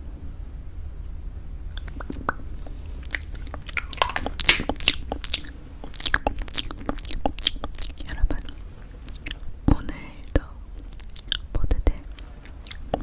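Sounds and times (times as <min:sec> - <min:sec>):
wet mouth and lip clicks: 0:01.7 - 0:09.4, 0:10.6 - 0:13.0.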